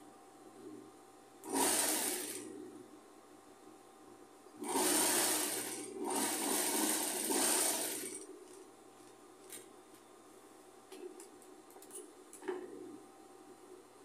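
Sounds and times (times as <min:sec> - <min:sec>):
sewing machine stitching: 0:01.4 - 0:02.5, 0:04.6 - 0:08.2.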